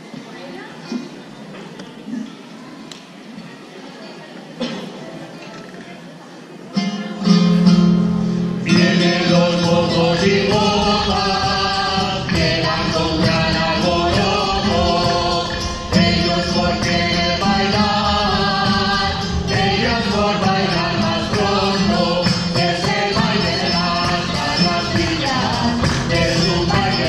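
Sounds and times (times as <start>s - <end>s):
group of voices singing: 8.6s - 27.0s
tambourine beat: 8.7s - 27.0s.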